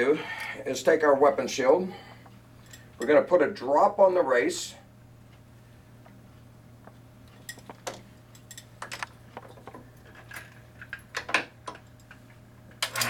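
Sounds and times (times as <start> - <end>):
steady low hum: 0.0 - 13.0
small metallic clicks and clinks: 7.3 - 11.0.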